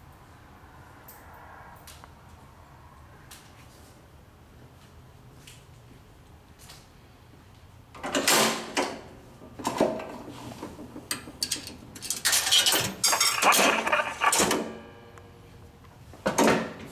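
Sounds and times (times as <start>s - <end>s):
metallic rattling and whirring: 10.0s - 14.6s
coin mechanism metal clanks: 10.8s - 14.8s.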